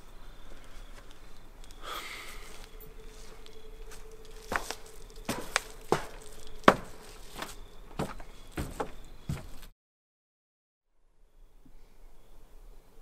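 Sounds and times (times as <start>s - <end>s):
faint steady hum: 0.0s - 9.7s, 10.9s - 13.0s
footsteps on hard floor: 3.1s - 9.7s.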